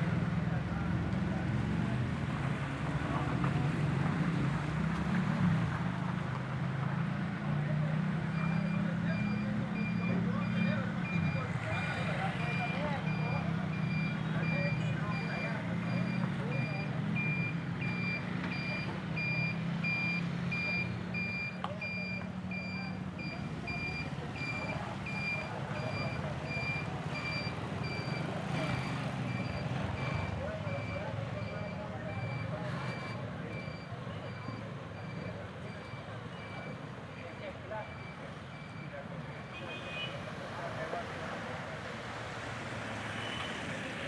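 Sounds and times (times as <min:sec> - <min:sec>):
vehicle engines running slowly: 0:00.0 - 0:39.5
reversing alarm beeping: 0:08.3 - 0:39.6.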